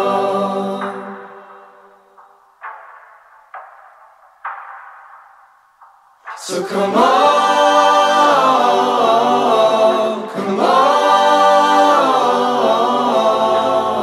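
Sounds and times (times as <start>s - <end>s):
a cappella voices singing chords: 0.0s - 2.2s, 6.3s - 14.0s.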